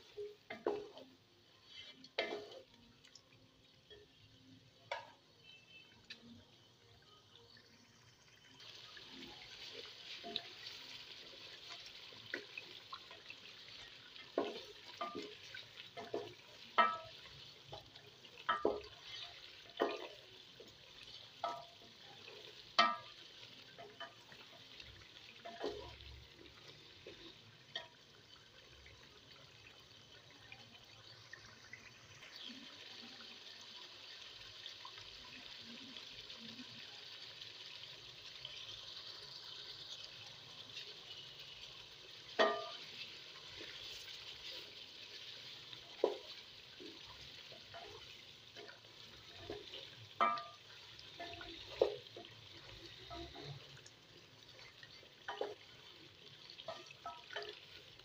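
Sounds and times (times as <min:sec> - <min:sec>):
chicken sizzling in a pot: 0:00.0 - 0:58.0
spatula clacking against pot: 0:19.8 - 0:20.2, 0:22.8 - 0:23.2, 0:42.4 - 0:43.0.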